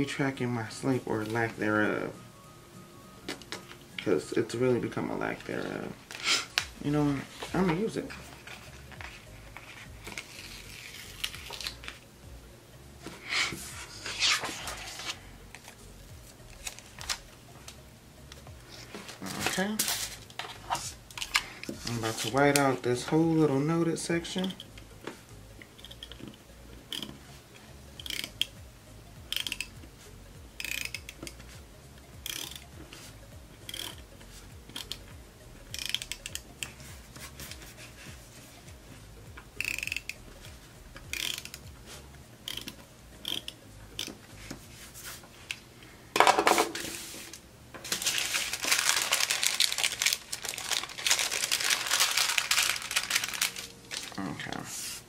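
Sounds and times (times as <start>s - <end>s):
tape runner ratcheting rasp: 28.0s - 28.5s, 29.3s - 29.8s, 30.6s - 31.4s, 32.2s - 32.7s, 33.6s - 34.0s, 35.7s - 36.4s, 39.6s - 40.2s, 41.0s - 41.7s, 42.4s - 44.2s
tissue paper crinkling: 47.9s - 55.0s.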